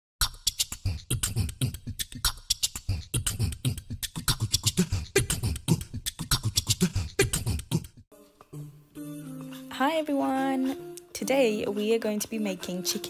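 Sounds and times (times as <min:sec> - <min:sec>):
fast percussive beat: 0:00.2 - 0:08.1.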